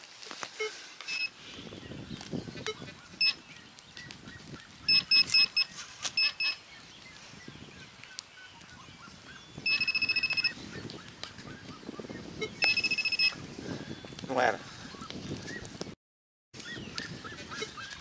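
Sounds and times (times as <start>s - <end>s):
soil and roots scraping: 0.0s - 8.8s
metal detector pinpointer beeps: 0.6s - 1.4s, 2.6s - 3.4s, 4.9s - 6.6s, 9.6s - 10.6s, 12.4s - 13.4s.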